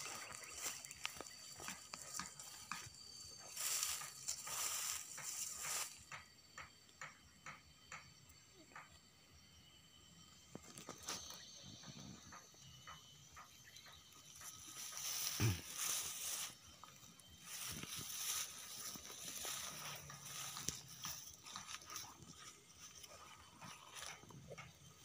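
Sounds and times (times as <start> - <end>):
hiss: 2.4 - 6.7.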